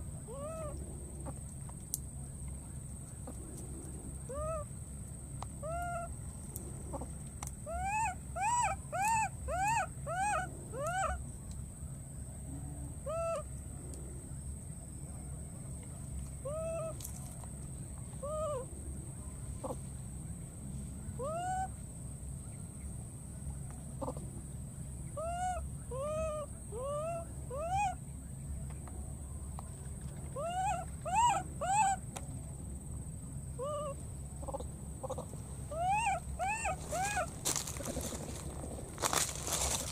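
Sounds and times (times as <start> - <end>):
baby monkey crying: 7.7 - 11.2, 13.1 - 13.4, 16.4 - 17.0, 21.2 - 21.7, 25.2 - 28.0, 30.4 - 32.0, 33.6 - 38.2.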